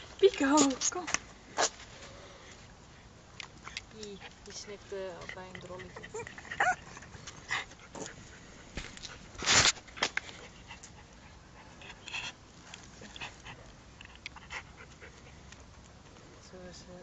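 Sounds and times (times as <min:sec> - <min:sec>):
dog breathing and sniffing: 0:02.4 - 0:16.1.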